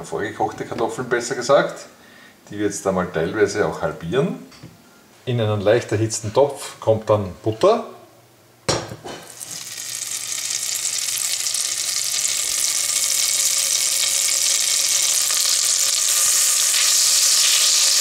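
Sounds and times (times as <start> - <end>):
butter sizzling in a pot: 9.2 - 18.0.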